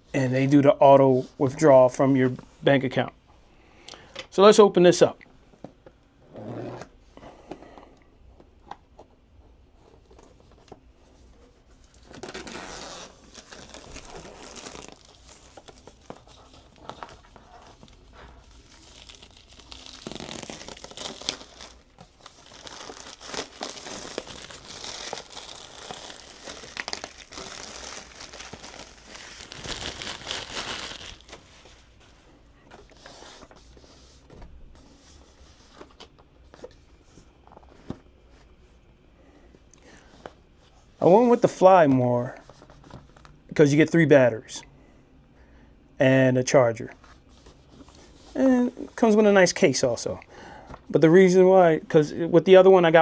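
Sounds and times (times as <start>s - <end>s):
plastic wrap crinkling and tearing: 11.7s - 32.0s.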